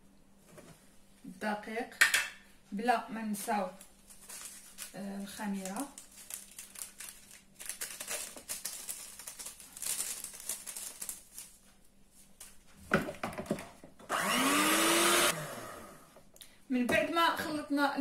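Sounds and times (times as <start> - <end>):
paper sachet rustling: 3.3 - 12.7
electric hand mixer whining: 14.1 - 16.2.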